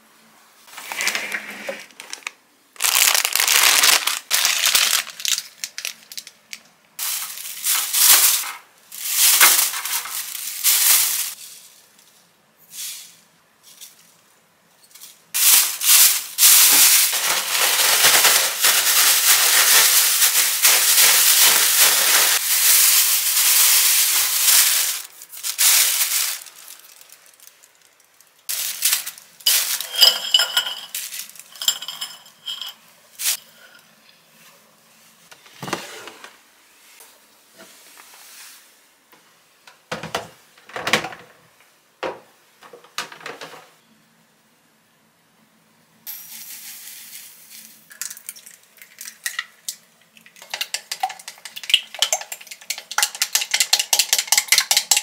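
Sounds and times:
plastic packaging crinkling: 0:00.7 - 0:11.4, 0:15.4 - 0:33.4
snacks rattling in shaken bag: 0:01.9 - 0:06.4, 0:15.4 - 0:27.9.

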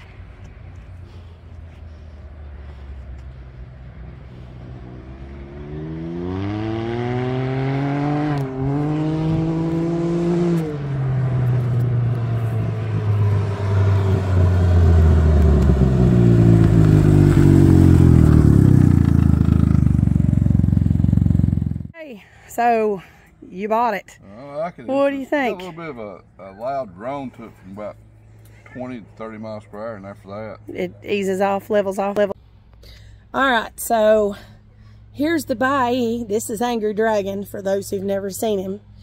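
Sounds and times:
motorcycle engine accelerating: 0:00.0 - 0:22.0.

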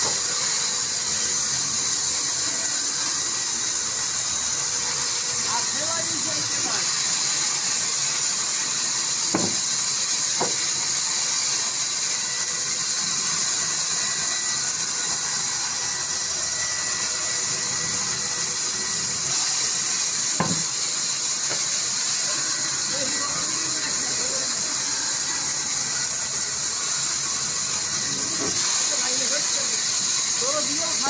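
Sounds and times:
knocks from timber handling: 0:09.4 - 0:09.6, 0:20.4 - 0:20.6.

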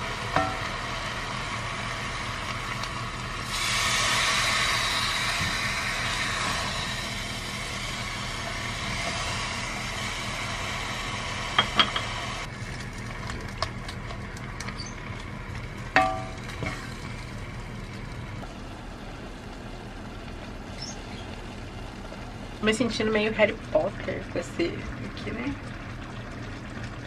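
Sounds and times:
food sizzling in a pot: 0:00.0 - 0:12.5.

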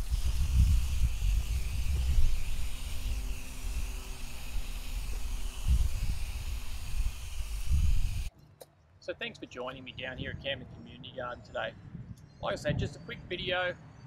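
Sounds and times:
hose spraying water on soil: 0:00.0 - 0:08.3.

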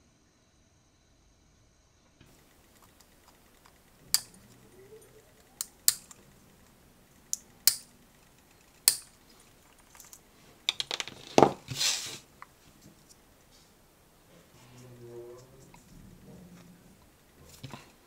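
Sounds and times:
rapid clicks: 0:02.3 - 0:11.0
short rustle: 0:11.2 - 0:16.8.

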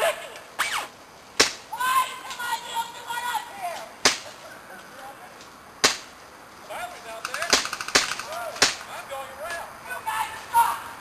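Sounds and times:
airsoft gun shots: 0:05.8 - 0:06.1, 0:07.2 - 0:08.9.

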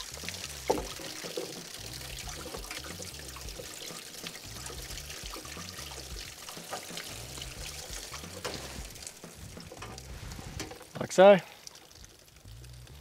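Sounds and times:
background music bass line: 0:00.0 - 0:10.9, 0:12.3 - 0:13.0
water pouring and dribbling: 0:00.0 - 0:13.0.

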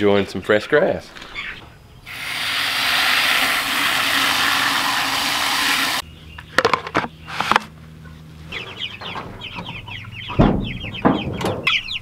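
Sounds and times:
hose water spraying into bucket: 0:02.1 - 0:06.0.

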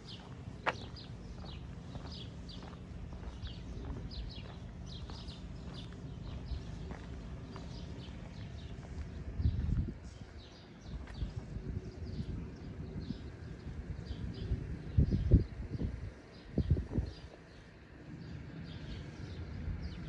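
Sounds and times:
low outdoor rumble: 0:00.0 - 0:20.0
small birds chirping: 0:00.0 - 0:20.0.

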